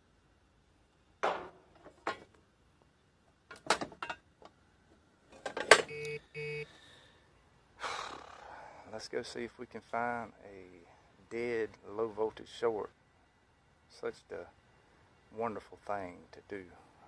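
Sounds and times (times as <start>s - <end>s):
short electronic beeps: 5.9s - 6.7s.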